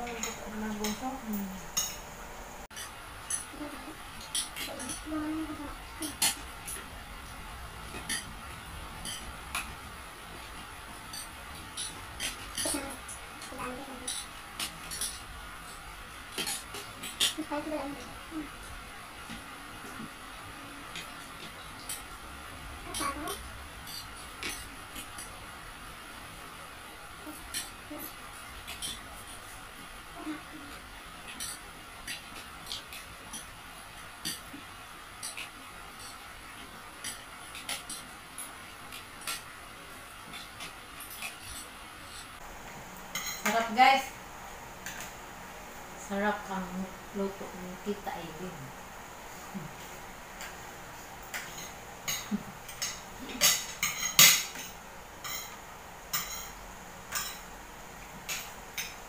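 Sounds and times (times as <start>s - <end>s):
steady background hiss: 0.0s - 59.0s
cutlery clinking on plates: 1.7s - 3.6s, 7.9s - 8.4s, 9.0s - 9.8s, 11.0s - 12.8s, 13.4s - 15.3s, 43.1s - 43.7s, 51.3s - 57.5s, 58.2s - 59.0s.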